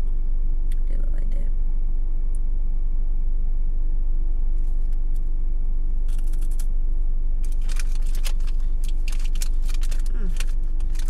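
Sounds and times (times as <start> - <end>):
car engine idling: 0.0 - 11.0
crunchy wafer being chewed: 7.4 - 11.0.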